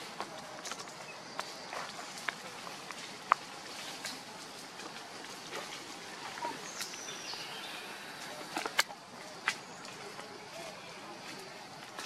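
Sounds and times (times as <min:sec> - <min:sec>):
rustles in dry leaves: 0:00.0 - 0:12.0
steady forest hiss: 0:00.0 - 0:12.0.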